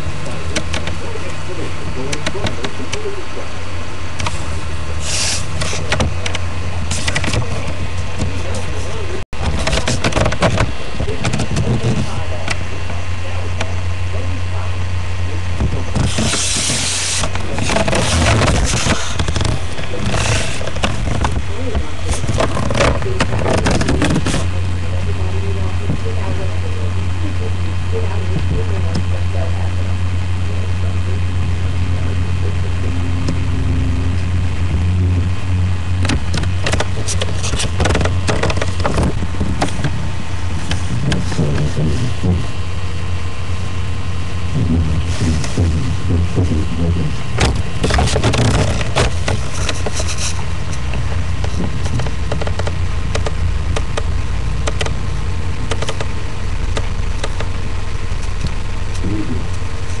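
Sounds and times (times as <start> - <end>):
low hum: 0.0 - 60.0
sharp clicks: 50.7 - 55.0, 55.6 - 56.1.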